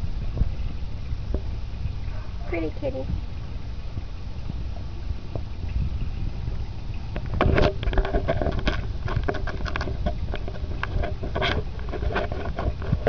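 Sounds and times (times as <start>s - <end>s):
camera handling rumble: 7.1s - 13.0s
clicks and scrapes: 7.2s - 13.0s.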